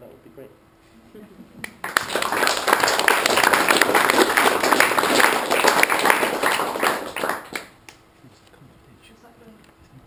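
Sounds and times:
audience applauding: 1.7 - 7.8.

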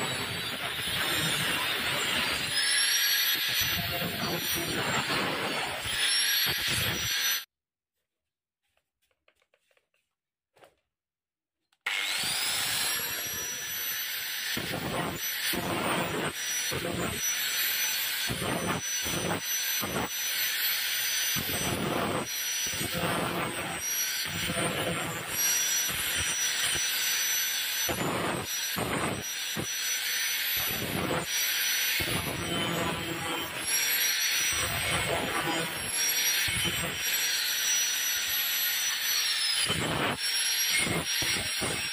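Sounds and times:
angle grinder grinding metal: 0.0 - 7.5, 11.8 - 41.9.

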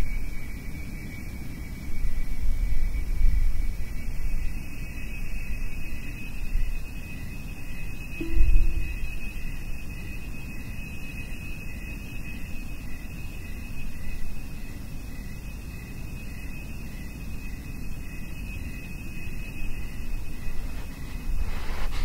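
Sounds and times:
pulsing lower tone: 8.2 - 9.9
steady high tone: 8.2 - 12.0.

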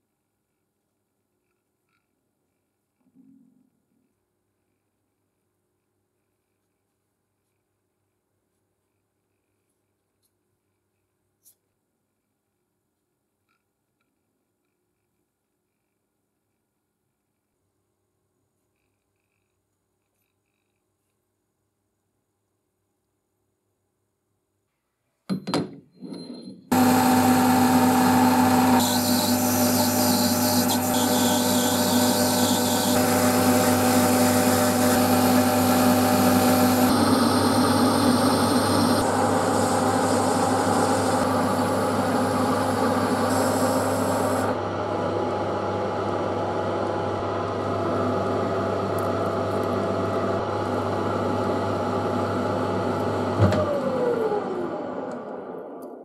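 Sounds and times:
tool scraping metal chips: 26.6 - 36.9
metal lathe running: 26.7 - 44.6
spindle winding down: 26.7 - 44.6.

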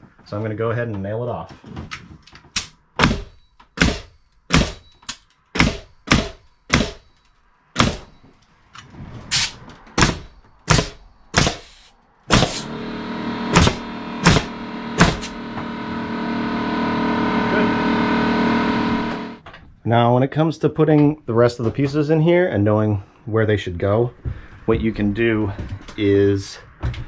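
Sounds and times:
nail gun shots: 2.6 - 4.9, 5.6 - 7.1, 7.8 - 8.1, 9.4 - 12.7, 13.5 - 15.4
steady motor hum: 12.3 - 19.4.

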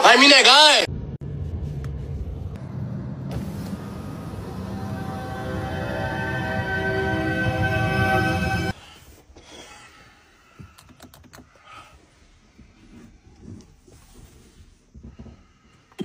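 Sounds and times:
music: 4.4 - 8.8
soft rustling: 12.0 - 15.8.

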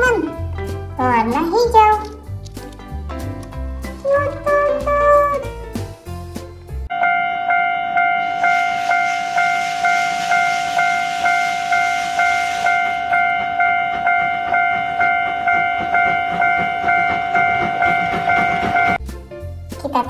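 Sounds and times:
level crossing warning bell: 6.9 - 19.0
steam locomotive hissing: 8.2 - 19.0.

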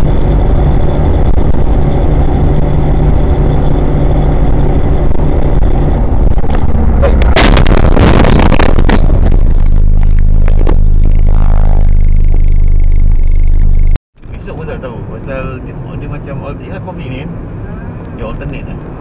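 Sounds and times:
car engine and road noise: 0.0 - 19.0
car collision crash: 7.0 - 9.3.

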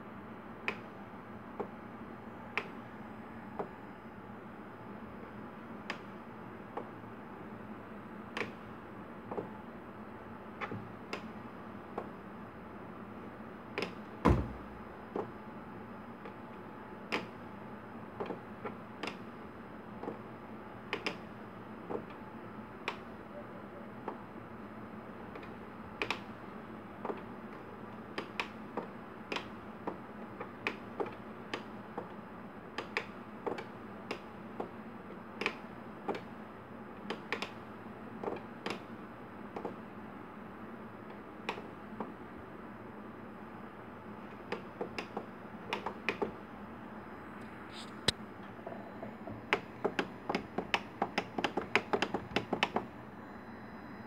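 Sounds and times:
faint steady hum: 0.0 - 54.0
thump: 14.2 - 14.6.

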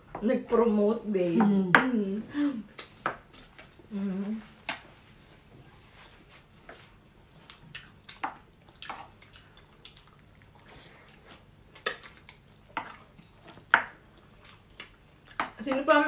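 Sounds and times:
wet chewing and mouth clicks: 2.7 - 3.8, 7.3 - 15.8.

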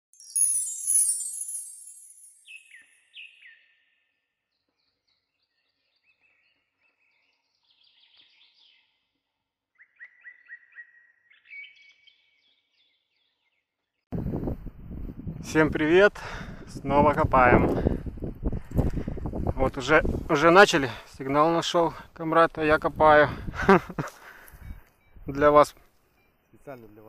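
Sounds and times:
songbirds singing: 1.8 - 14.1, 23.6 - 27.0.

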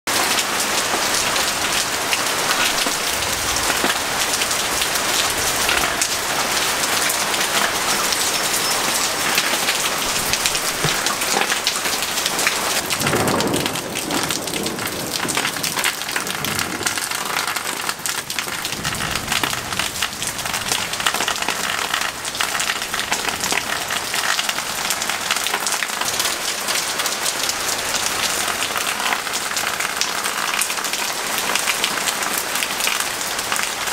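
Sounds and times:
heavy rain on paving and foliage: 0.1 - 33.9
low thunder rumble: 8.8 - 17.6, 18.4 - 21.4.

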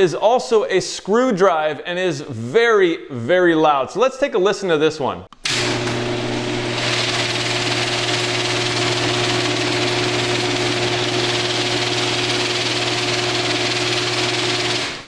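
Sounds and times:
garage door opener droning: 5.4 - 15.0.

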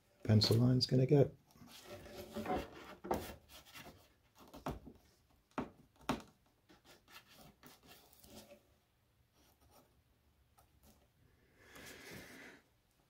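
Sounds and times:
pencil scratching on paper: 6.7 - 8.4.

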